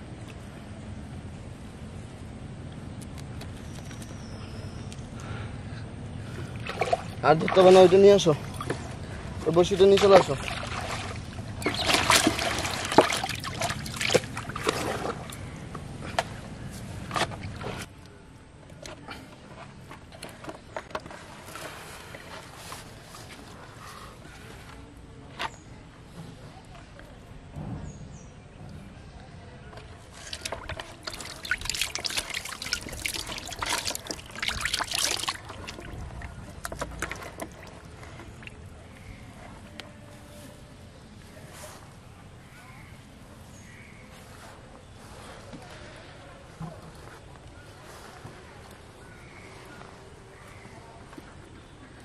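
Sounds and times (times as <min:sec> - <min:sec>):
water splashing and sloshing: 0:06.2 - 0:17.9, 0:29.7 - 0:39.7.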